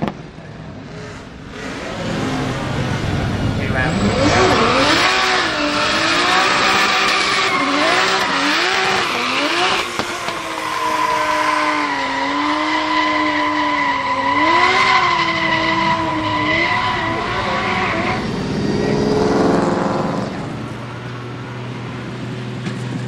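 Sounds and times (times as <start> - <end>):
car engine revving high: 0.8 - 22.3.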